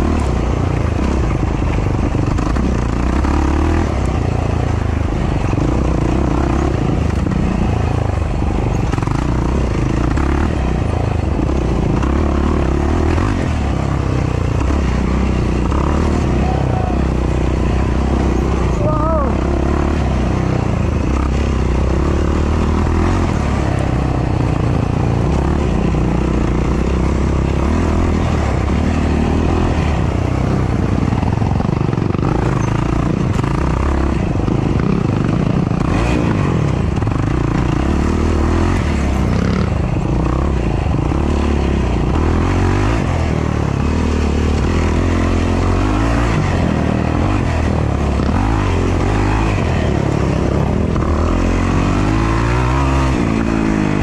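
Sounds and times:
quad engine revving: 0:00.0 - 0:54.0.

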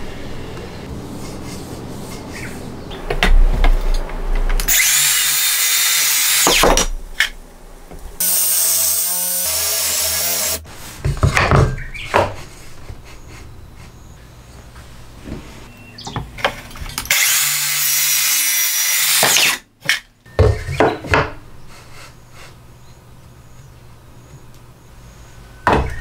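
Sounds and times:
circular saw cutting wood: 0:04.6 - 0:06.8, 0:08.2 - 0:10.7, 0:17.1 - 0:19.6.

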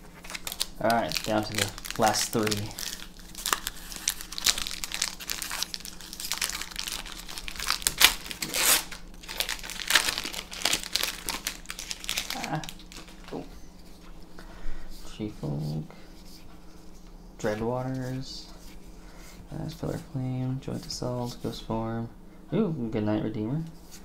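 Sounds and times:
wrapper being torn and crinkled: 0:00.1 - 0:13.4.

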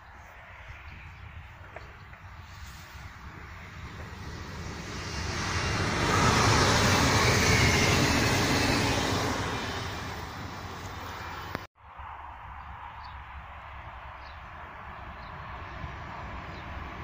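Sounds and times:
electric train passing: 0:02.3 - 0:11.7.

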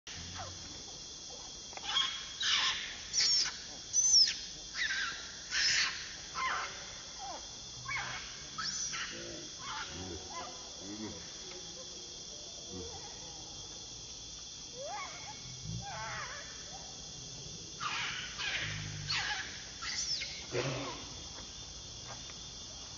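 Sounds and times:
high insect drone: 0:00.1 - 0:22.9
baby monkey squealing: 0:01.9 - 0:06.6, 0:17.8 - 0:20.5.

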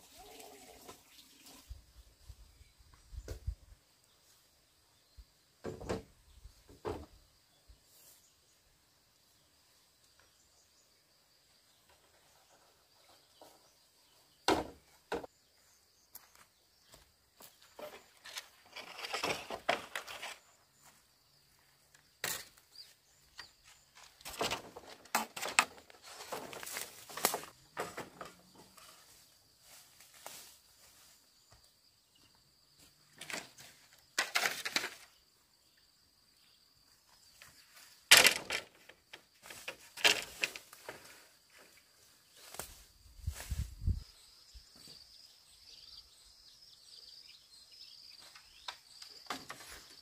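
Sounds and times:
bamboo poles rustling and knocking: 0:00.0 - 0:04.4, 0:05.6 - 0:07.3, 0:11.7 - 0:35.2, 0:37.1 - 0:44.0, 0:48.2 - 0:50.0.

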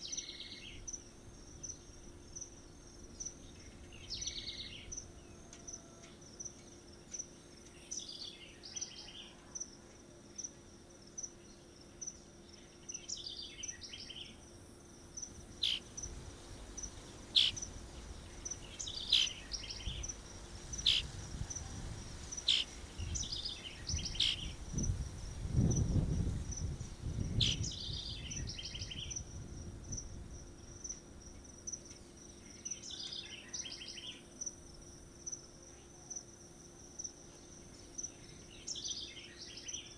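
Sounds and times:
high-pitched insect trill: 0:00.0 - 0:39.9
chirping calls: 0:15.6 - 0:15.9, 0:17.3 - 0:17.7, 0:18.4 - 0:20.2, 0:20.8 - 0:21.1, 0:22.4 - 0:24.6.

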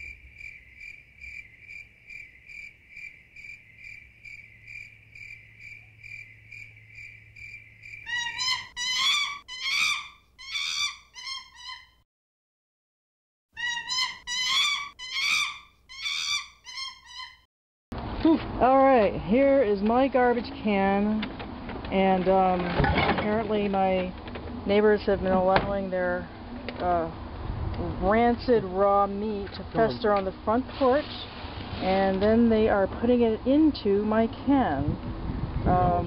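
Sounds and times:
cricket chirping: 0:00.0 - 0:08.7
wavering pitched calls: 0:02.5 - 0:12.0, 0:13.6 - 0:17.4.

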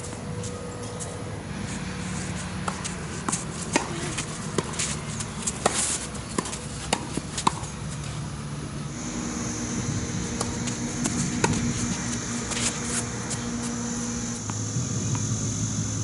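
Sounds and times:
steady low hum: 0:00.0 - 0:16.0
tennis ball hit by rackets: 0:02.6 - 0:07.7, 0:10.2 - 0:15.3.

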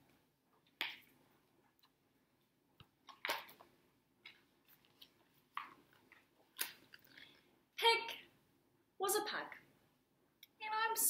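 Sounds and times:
book pages turning: 0:04.3 - 0:07.2.

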